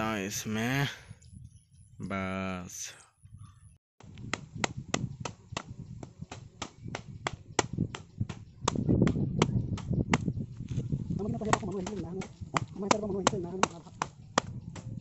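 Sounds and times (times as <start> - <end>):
plank knocking on bamboo: 11.4 - 14.9.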